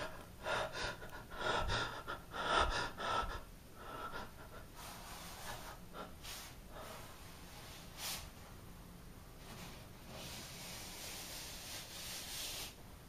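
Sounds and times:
person gasping and breathing hard: 0:00.0 - 0:07.1.

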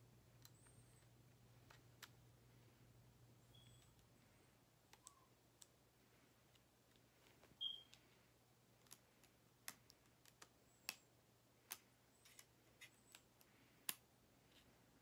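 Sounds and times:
brief high squeak: 0:07.6 - 0:07.9.

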